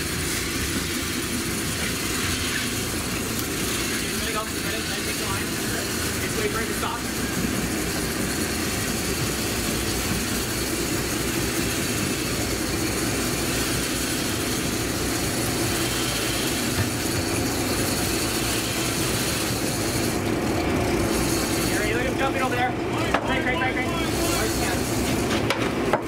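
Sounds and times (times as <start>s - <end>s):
boat engine running: 0.0s - 26.0s
continuous rushing noise: 0.0s - 26.0s.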